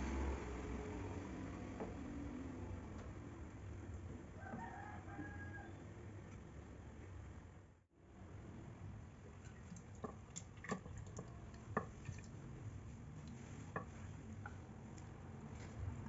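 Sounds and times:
wet food squishes: 9.3 - 15.0.

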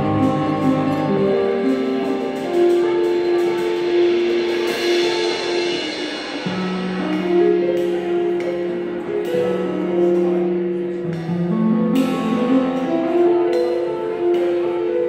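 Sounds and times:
electric bass: 0.0 - 3.0
drum kit with cymbals: 0.0 - 15.0
jazz band playing: 0.0 - 15.0
long held melody notes: 0.0 - 15.0.

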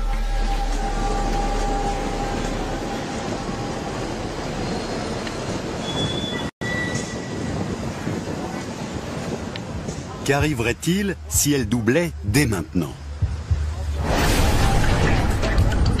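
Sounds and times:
busy station noise: 0.0 - 16.0
train running: 0.0 - 16.0
train wheels squealing: 4.5 - 7.7.

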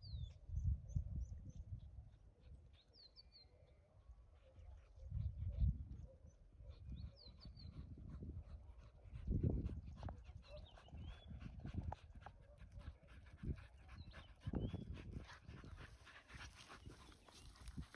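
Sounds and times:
dogs panting and sniffing: 6.5 - 17.9.

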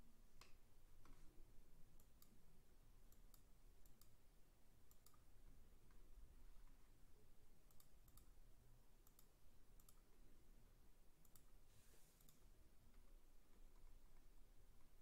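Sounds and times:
soft clicks: 0.4 - 1.4, 2.0 - 2.4, 3.1 - 4.2, 4.8 - 6.8, 7.6 - 8.4, 9.0 - 10.2, 11.2 - 15.0.

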